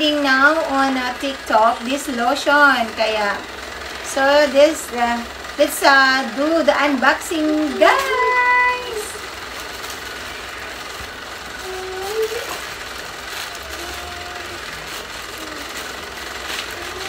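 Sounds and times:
machine whirring: 0:00.0 - 0:17.0
plastic pouch rustling: 0:07.8 - 0:17.0.

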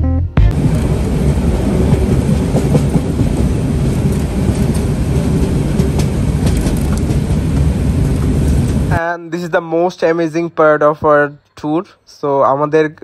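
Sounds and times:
train rumbling: 0:00.5 - 0:09.0
train wheels clacking: 0:00.6 - 0:08.8.

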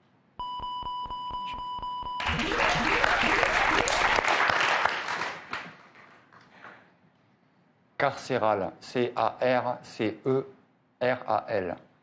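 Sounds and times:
steady electronic beep: 0:00.4 - 0:04.2
audience applause: 0:02.2 - 0:06.2.

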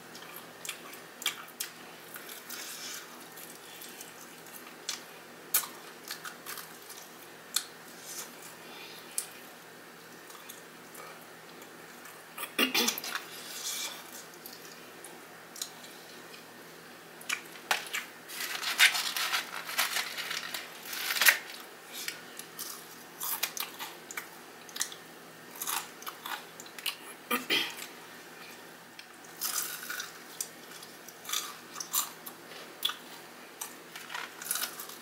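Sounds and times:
crunching and chewing fried chicken: 0:00.1 - 0:09.5, 0:17.2 - 0:27.0, 0:29.1 - 0:35.0.

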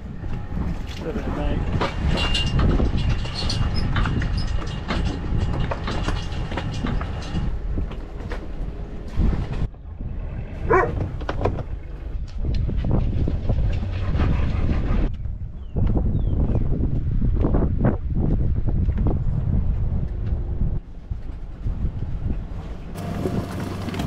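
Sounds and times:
steady low rumbling: 0:00.0 - 0:24.0
knocks and clatter: 0:00.6 - 0:09.8, 0:10.7 - 0:15.0
dog whining: 0:10.6 - 0:11.0.

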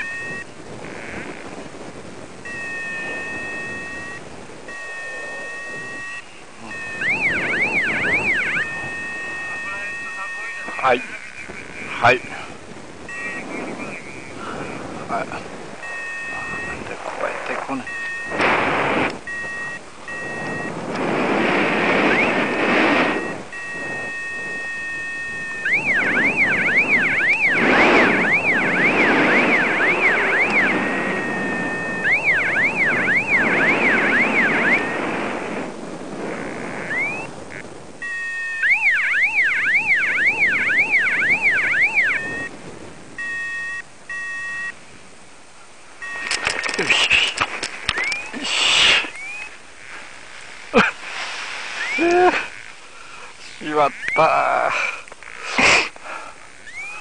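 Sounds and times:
short electronic beeps: 0:00.0 - 0:01.2, 0:02.4 - 0:11.6, 0:13.1 - 0:14.4, 0:15.8 - 0:16.9, 0:17.7 - 0:18.6, 0:19.2 - 0:20.8, 0:22.0 - 0:35.0, 0:36.4 - 0:42.5, 0:43.2 - 0:44.8, 0:46.0 - 0:46.8, 0:47.9 - 0:48.4, 0:49.1 - 0:49.6, 0:51.8 - 0:52.6, 0:56.6 - 0:57.0
wind noise on microphone: 0:00.0 - 0:54.2
warbling electronic tone: 0:02.4 - 0:12.1, 0:13.0 - 0:35.2, 0:36.2 - 0:42.5, 0:49.0 - 0:49.6, 0:51.7 - 0:52.8, 0:56.6 - 0:57.0.

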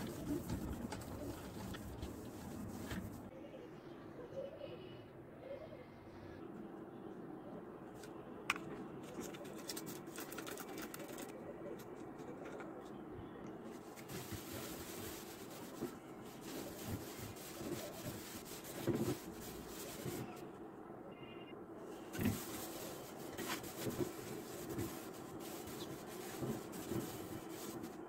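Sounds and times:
cloth rubbing on glass: 0:00.0 - 0:03.3, 0:13.8 - 0:20.4, 0:22.0 - 0:28.0.

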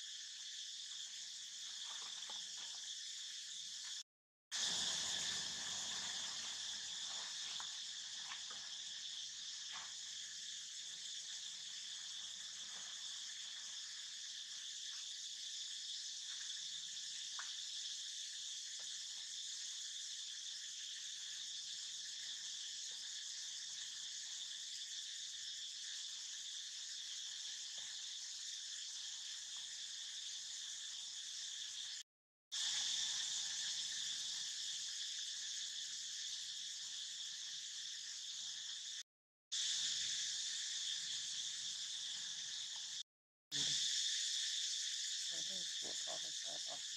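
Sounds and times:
high-pitched insect chorus: 0:00.0 - 0:46.9
faint ticks and rustles: 0:01.6 - 0:03.0, 0:06.4 - 0:10.2.

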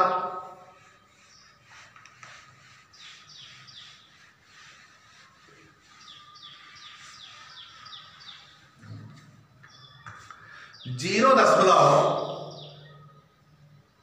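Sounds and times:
duster rubbing whiteboard: 0:00.0 - 0:09.4.

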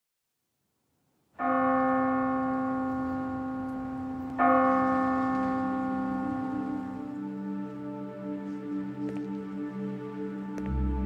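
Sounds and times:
bell ringing: 0:01.4 - 0:07.3.

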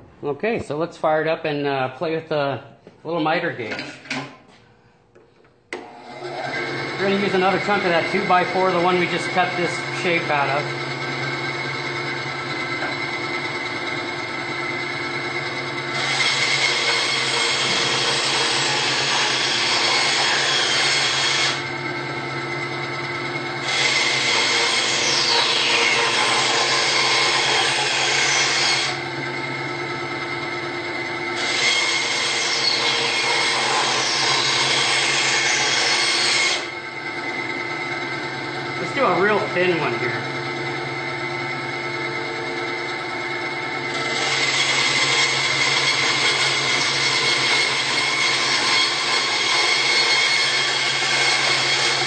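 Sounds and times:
saw blade cutting wood: 0:05.8 - 0:14.0, 0:14.8 - 0:21.8, 0:23.5 - 0:29.1, 0:31.4 - 0:36.8, 0:43.8 - 0:52.0
band saw motor hum: 0:05.8 - 0:52.0.

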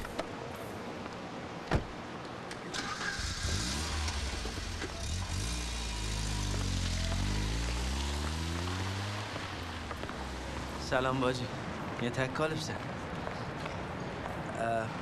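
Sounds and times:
vehicle engine starting and running: 0:02.7 - 0:10.6.

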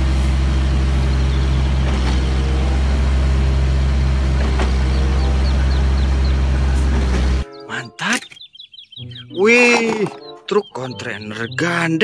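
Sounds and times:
diesel truck engines running: 0:00.0 - 0:09.3.

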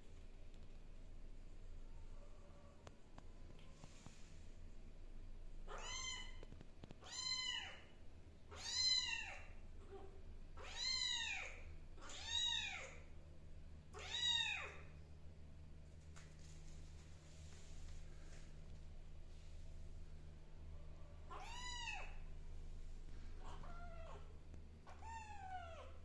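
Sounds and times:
kitten meowing: 0:05.7 - 0:06.4, 0:07.0 - 0:07.8, 0:21.3 - 0:22.2, 0:24.9 - 0:25.9.

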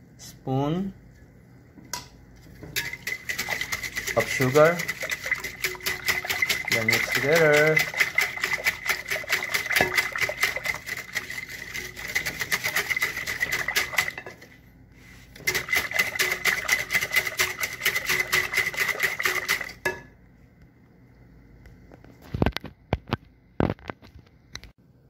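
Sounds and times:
whisk clinking against bowl: 0:02.7 - 0:14.4, 0:15.4 - 0:20.0.

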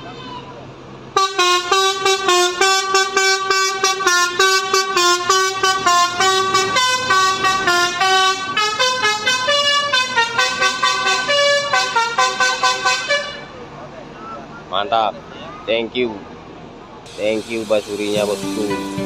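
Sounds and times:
multi-tone bus horn tune: 0:01.1 - 0:13.6, 0:17.1 - 0:19.0.

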